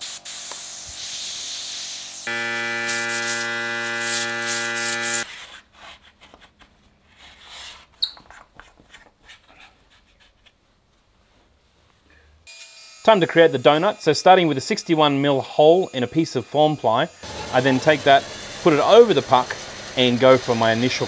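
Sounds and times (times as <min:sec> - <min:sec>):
air hiss: 0:00.0 - 0:02.3
motor hum: 0:02.3 - 0:05.3.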